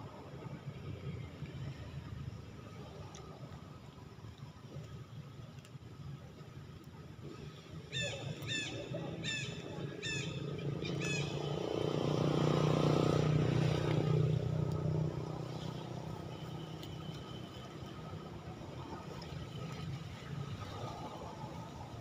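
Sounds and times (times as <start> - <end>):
motor vehicle passing: 8.8 - 18.2.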